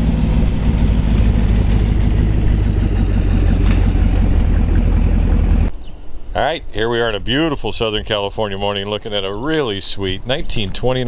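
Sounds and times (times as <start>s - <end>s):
truck engine driving past: 0.0s - 5.7s.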